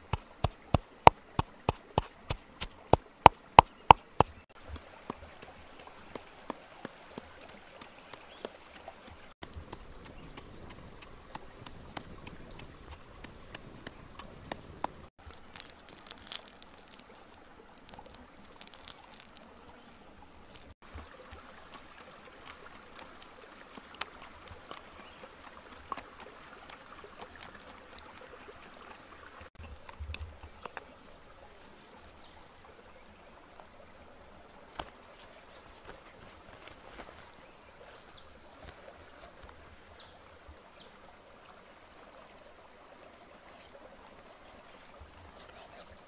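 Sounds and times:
stream running over rocks: 0.0s - 46.0s
campfire crackling: 9.4s - 21.8s.

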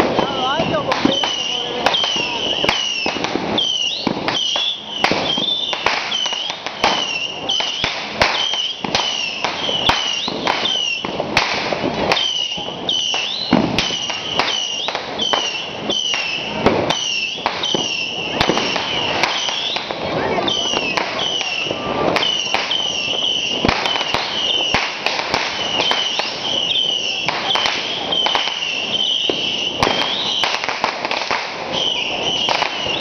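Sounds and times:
voices: 0.0s - 3.0s, 17.8s - 23.2s
firecrackers banging: 0.0s - 33.0s.

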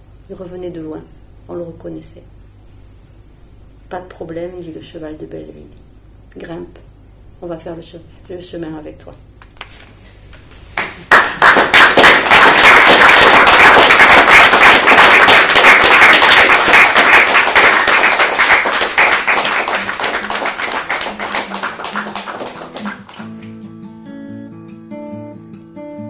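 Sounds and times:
audience applauding: 10.8s - 23.5s.

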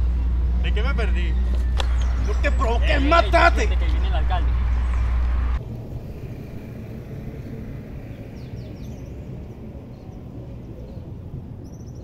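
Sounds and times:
steady low rumble: 0.0s - 12.0s
high bird chirps: 1.3s - 5.6s.

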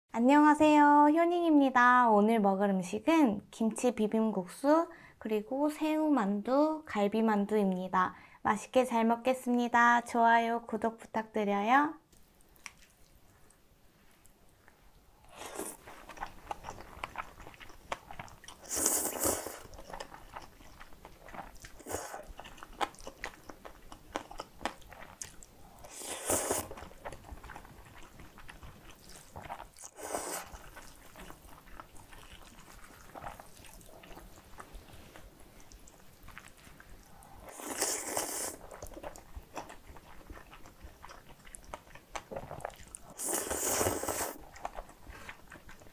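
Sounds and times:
wet chewing: 12.2s - 13.6s, 14.2s - 45.9s
slurping noodles: 15.3s - 16.0s, 18.6s - 19.9s, 25.8s - 27.7s, 29.0s - 31.4s, 37.1s - 38.9s, 42.3s - 45.4s.

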